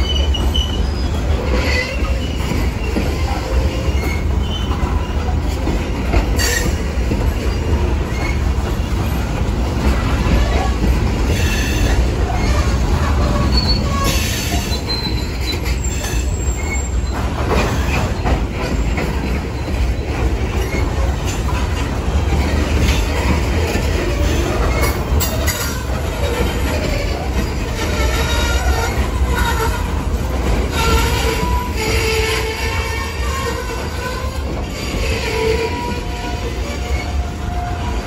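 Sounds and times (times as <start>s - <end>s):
wheel squeals: 0.0s - 5.7s, 9.9s - 30.0s
train wheels rumbling on rail: 0.0s - 38.0s.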